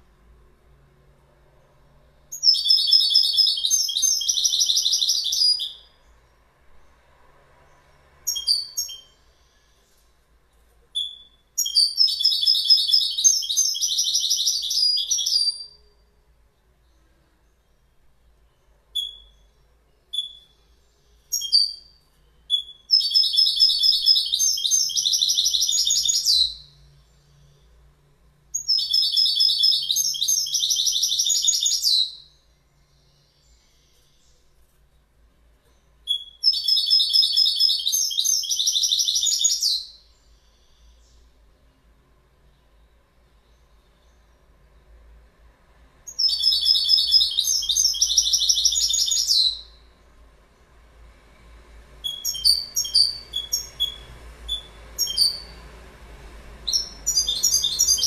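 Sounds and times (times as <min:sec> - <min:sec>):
finch twittering song: 0:02.2 - 0:06.3, 0:08.2 - 0:10.1, 0:10.9 - 0:27.8, 0:28.4 - 0:34.8, 0:35.6 - 0:41.8, 0:46.1 - 0:50.0, 0:52.0 - 0:55.7, 0:56.6 - 0:58.0.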